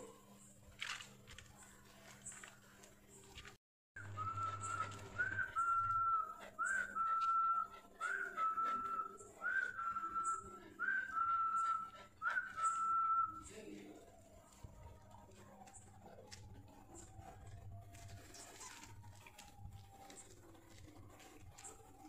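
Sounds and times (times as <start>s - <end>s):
person whistling: 4.0s - 13.4s.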